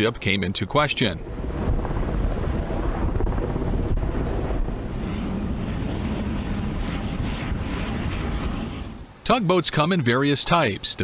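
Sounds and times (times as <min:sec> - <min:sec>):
wind buffeting microphone: 0:01.2 - 0:09.2.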